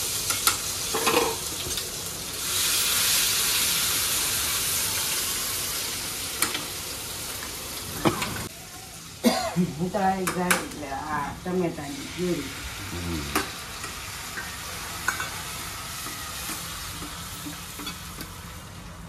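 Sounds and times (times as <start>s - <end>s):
spices sizzling in oil: 0.0s - 19.0s
person speaking: 12.8s - 13.5s.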